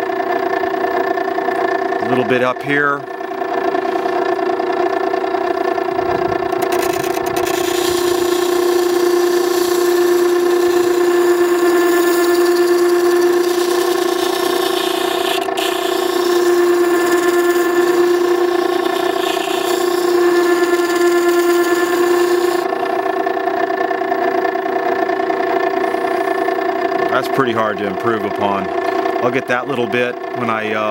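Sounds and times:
grinder motor hum: 0:00.0 - 0:30.9
steel scraping on stone: 0:06.6 - 0:22.7.

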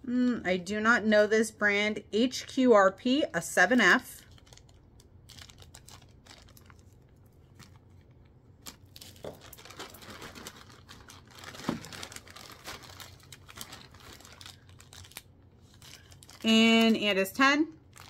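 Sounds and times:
packaging crinkling: 0:03.8 - 0:17.2, 0:17.8 - 0:18.0.

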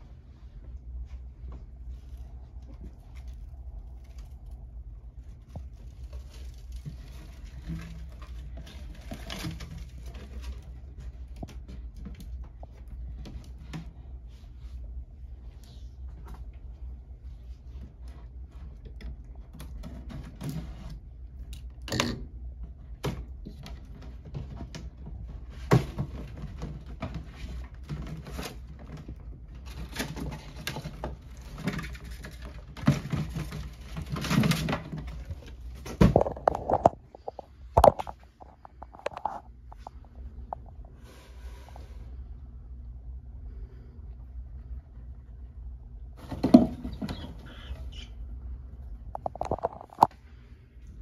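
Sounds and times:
rustling: 0:00.0 - 0:21.4
clicks and knocks on glass terrarium: 0:29.8 - 0:39.9.

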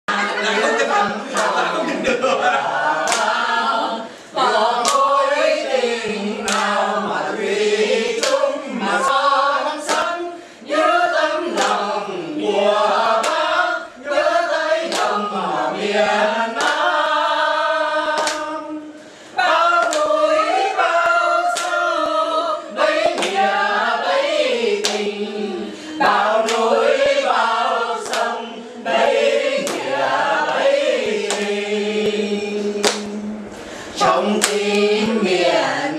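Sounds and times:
group singing unaccompanied: 0:00.1 - 0:35.9
people clapping in time: 0:00.9 - 0:01.8, 0:03.0 - 0:03.5, 0:04.8 - 0:05.1, 0:06.4 - 0:06.8, 0:08.2 - 0:09.1, 0:09.8 - 0:10.2, 0:11.5 - 0:11.8, 0:13.2 - 0:13.5, 0:14.8 - 0:15.2, 0:16.6 - 0:17.0, 0:18.1 - 0:18.6, 0:19.6 - 0:22.2, 0:23.0 - 0:23.5, 0:24.8 - 0:25.1, 0:26.0 - 0:26.8, 0:28.0 - 0:28.5, 0:29.6 - 0:30.1, 0:30.8 - 0:33.2, 0:34.0 - 0:35.4.

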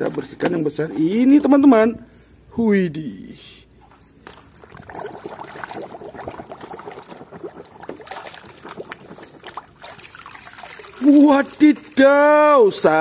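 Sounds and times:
water sloshing in plastic tub: 0:04.2 - 0:12.2.

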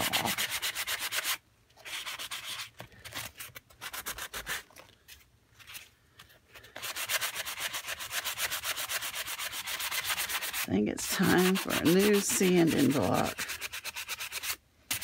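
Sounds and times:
sanding block scrubbing paper: 0:00.0 - 0:02.7, 0:06.8 - 0:15.0.

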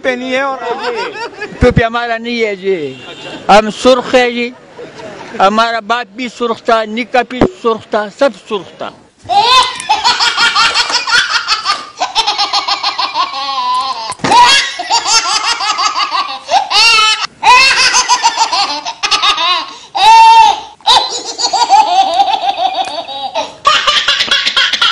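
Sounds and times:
loud hearty laughter: 0:00.5 - 0:01.7, 0:09.3 - 0:24.9.

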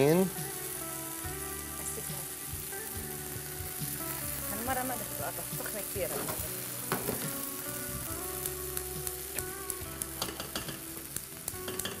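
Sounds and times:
beef sizzling in a pan: 0:00.0 - 0:12.0
utensils clicking on cookware: 0:10.2 - 0:10.8, 0:11.6 - 0:12.0.

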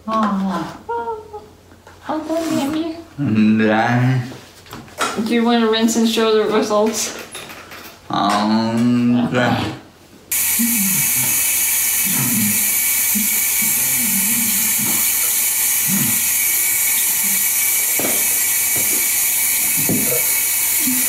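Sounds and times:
man rinsing mouth and spitting: 0:10.3 - 0:21.0
tap running into sink: 0:17.8 - 0:20.3.

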